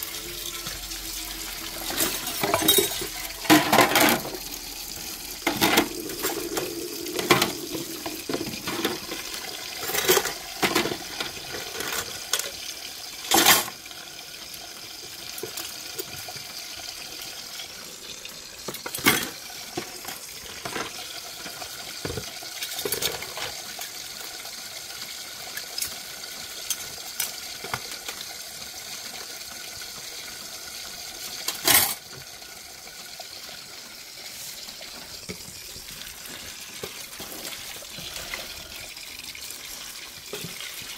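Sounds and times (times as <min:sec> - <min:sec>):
water pouring and splashing: 0:00.0 - 0:40.9
dishes and cutlery clinking: 0:01.8 - 0:04.4, 0:05.4 - 0:12.5.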